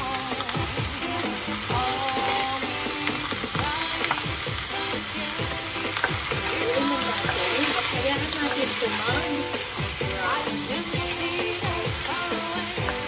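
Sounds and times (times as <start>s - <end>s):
background music: 0.0s - 13.0s
chicken sizzling in oil: 0.0s - 13.0s.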